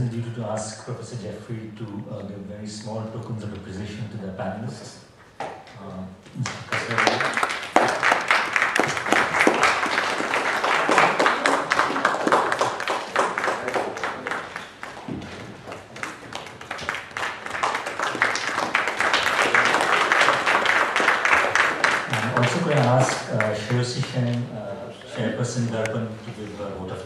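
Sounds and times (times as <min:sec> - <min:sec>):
audience applauding: 0:06.4 - 0:24.4.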